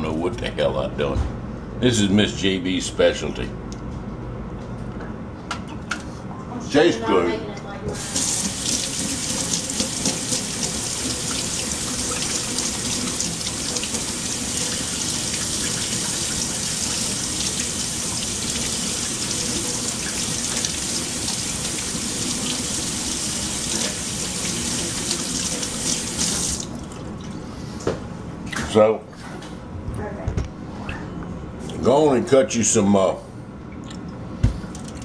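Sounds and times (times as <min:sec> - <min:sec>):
tap running into sink: 0:08.0 - 0:17.7.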